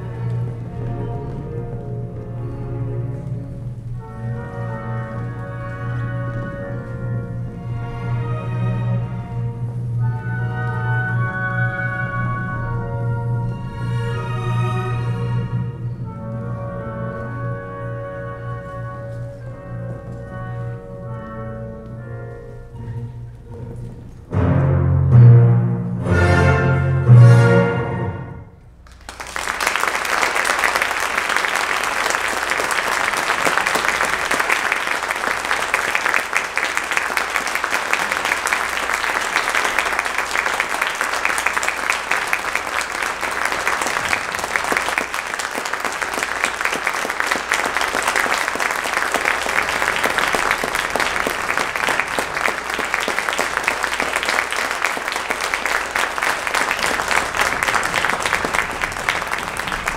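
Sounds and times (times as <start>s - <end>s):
audience applauding: 28.8s - 59.9s.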